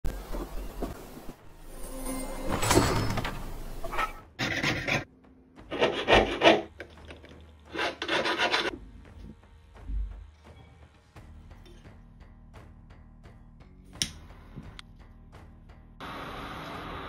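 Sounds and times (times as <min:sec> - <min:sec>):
hand file rasping on metal: 0:05.7 - 0:06.7, 0:07.7 - 0:08.7.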